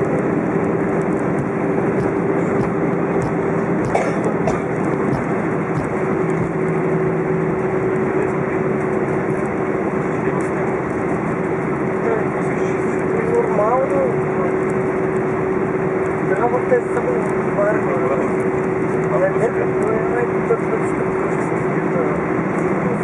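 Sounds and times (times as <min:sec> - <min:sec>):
jet engine cabin rush: 0:00.0 - 0:11.2.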